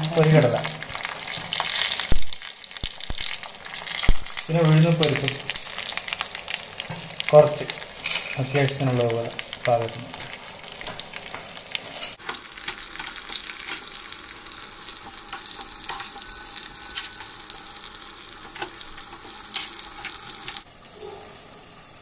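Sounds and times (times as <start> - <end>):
spices sizzling in hot oil: 0.0 - 22.0
metal spoon stirring: 11.9 - 14.2, 14.9 - 20.6.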